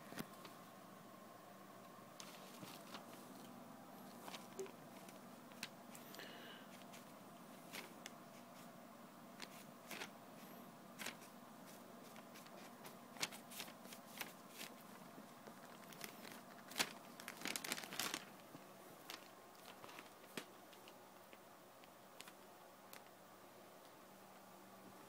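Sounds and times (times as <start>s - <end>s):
newspaper rustling: 2.2s - 6.1s, 6.7s - 8.7s, 9.4s - 10.2s, 11.0s - 21.0s.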